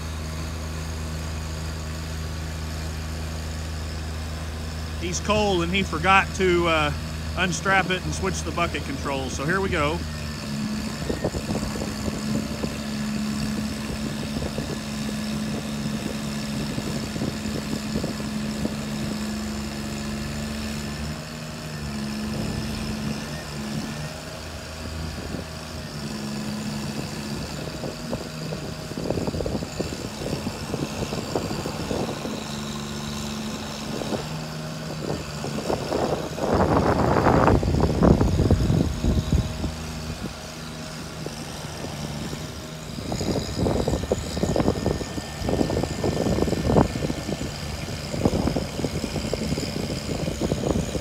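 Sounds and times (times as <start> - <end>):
truck engine and hydraulics: 0.0 - 51.0.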